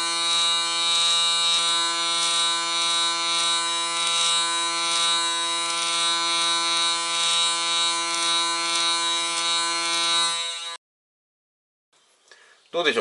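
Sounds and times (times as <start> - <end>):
hair clipper buzzing: 0.0 - 10.8.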